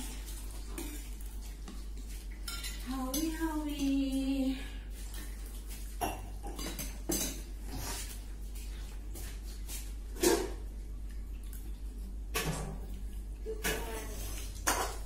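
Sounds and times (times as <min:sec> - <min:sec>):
low electrical hum: 0:00.0 - 0:15.0
utensils clinking on dishware: 0:02.4 - 0:04.0, 0:06.0 - 0:07.5.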